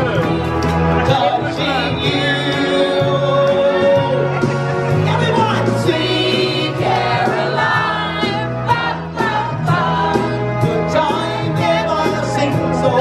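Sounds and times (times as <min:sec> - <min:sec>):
keyboard band accompaniment: 0:00.0 - 0:13.0
walking bass line: 0:00.0 - 0:13.0
women singing into microphones: 0:06.1 - 0:10.4.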